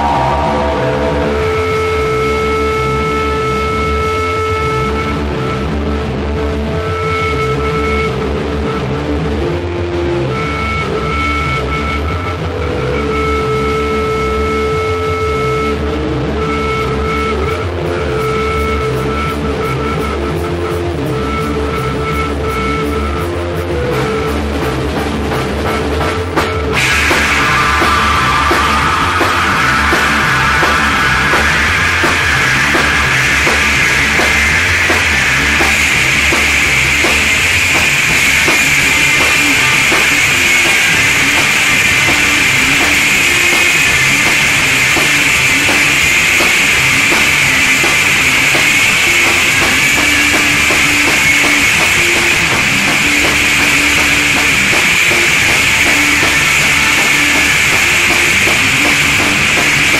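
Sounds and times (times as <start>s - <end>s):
driving drum kit with cymbals: 0.0s - 59.9s
heavy psychedelic rock music: 0.0s - 59.9s.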